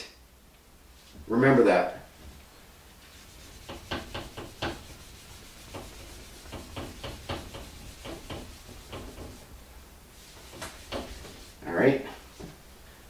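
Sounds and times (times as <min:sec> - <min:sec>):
eraser wiping a whiteboard: 0:02.9 - 0:12.5.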